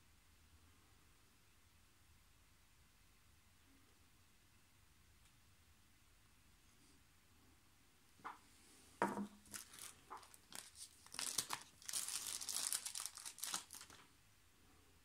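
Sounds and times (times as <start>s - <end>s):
bubble wrap crinkling: 9.4s - 14.1s.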